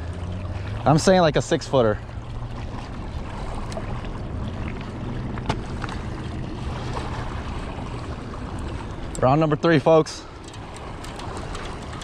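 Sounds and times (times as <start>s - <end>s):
low steady hum: 0.0s - 12.0s
river water flowing: 0.0s - 12.0s
faint clicks: 10.4s - 12.0s.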